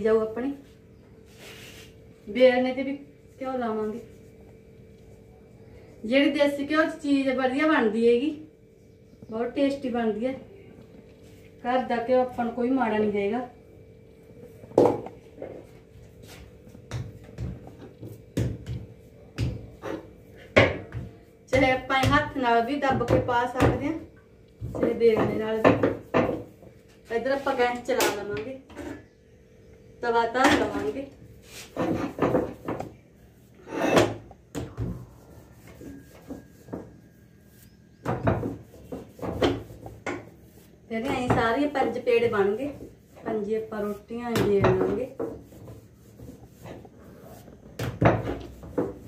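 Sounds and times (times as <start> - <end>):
dough and rolling pin knocks: 16.9 - 19.8, 24.6 - 26.5
rolling pin knocking on board: 24.6 - 26.5.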